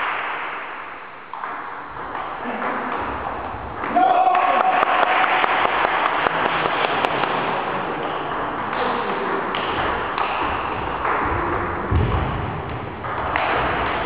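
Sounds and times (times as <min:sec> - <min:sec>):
sports hall background noise: 0:00.0 - 0:14.0.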